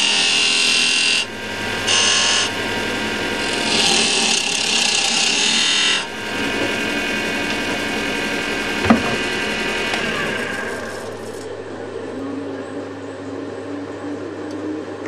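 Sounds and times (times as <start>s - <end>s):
lathe tool cutting wood hiss: 0.0s - 11.4s
lathe motor humming: 0.0s - 15.0s.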